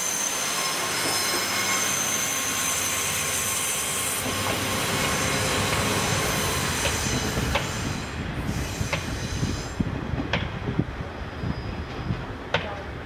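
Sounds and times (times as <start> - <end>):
train rumble and hiss: 0.0 - 13.0
train wheels clacking over joints: 4.1 - 8.0.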